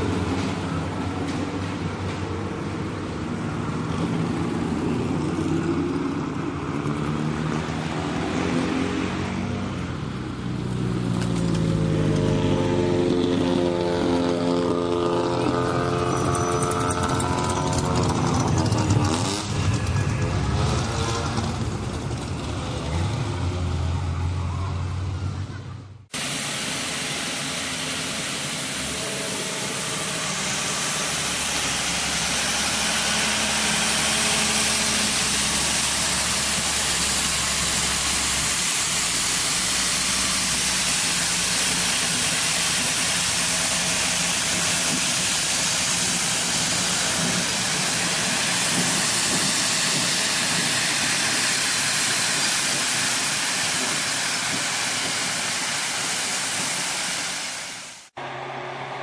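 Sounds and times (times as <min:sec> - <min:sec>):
race car engine running: 0:00.0 - 0:26.3, 0:27.2 - 0:55.5
steady hiss: 0:26.2 - 0:58.1.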